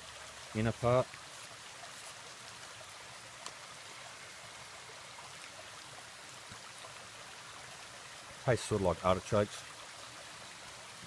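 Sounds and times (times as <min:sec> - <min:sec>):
creek flowing: 0:00.0 - 0:11.0
faint ticks: 0:03.4 - 0:03.6.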